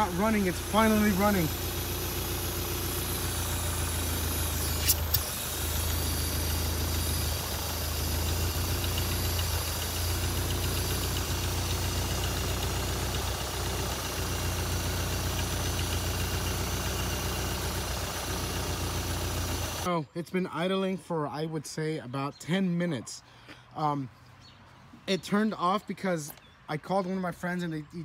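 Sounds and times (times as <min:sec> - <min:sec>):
car engine idling: 0:00.0 - 0:19.9.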